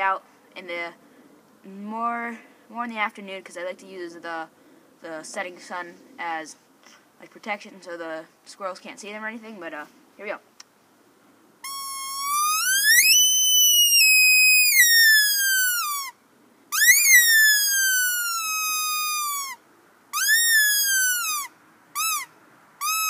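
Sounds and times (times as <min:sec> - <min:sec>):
squirrel call whistling screams: 0:11.6 - 0:23.0.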